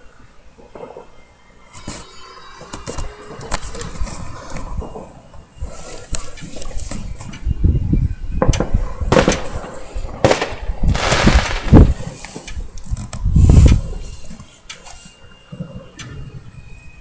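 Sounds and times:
fireworks bangs and crackles: 0.6 - 17.0
deep fireworks booms: 6.9 - 12.7.

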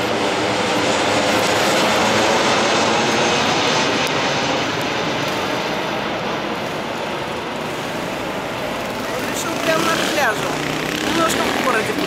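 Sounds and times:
jet airliner roar: 0.0 - 12.0.

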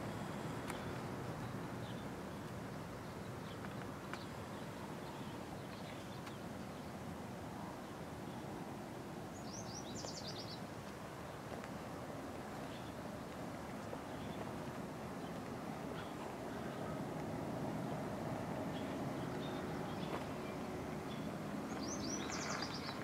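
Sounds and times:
outdoor background noise: 0.0 - 23.0
bird chirps: 18.7 - 23.0.

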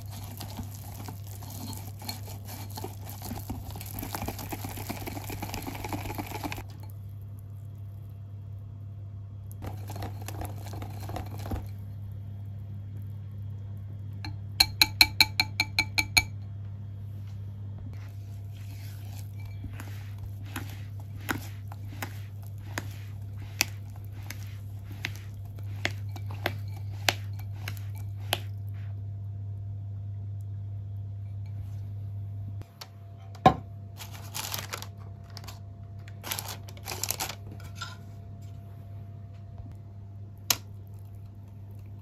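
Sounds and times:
spatula scraping a bowl: 0.0 - 6.9, 18.0 - 28.9
batter stirred in a glass bowl: 0.0 - 8.1, 9.6 - 13.1, 18.0 - 29.0
steady low hum: 0.0 - 42.0
whisk tapping on glass rim: 14.6 - 16.3.

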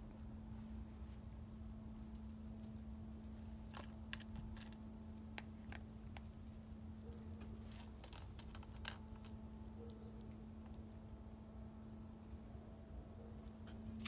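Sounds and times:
low hum: 0.0 - 14.0
cat crunching kibble: 2.1 - 10.7.

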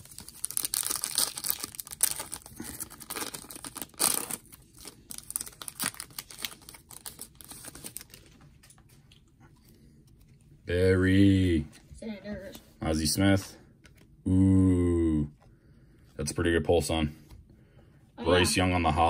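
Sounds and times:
foil wrapper crinkling and tearing: 0.0 - 8.8
cards rustling: 0.0 - 10.5.

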